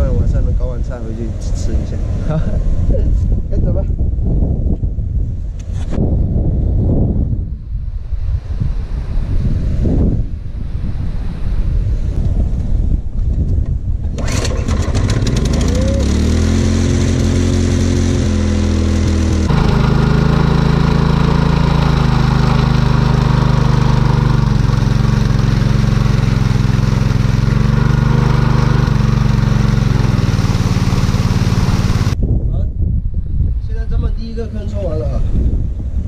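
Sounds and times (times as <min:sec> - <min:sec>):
small petrol engine pump running: 0:14.2 - 0:32.2
water splashing from outlet: 0:14.2 - 0:32.2.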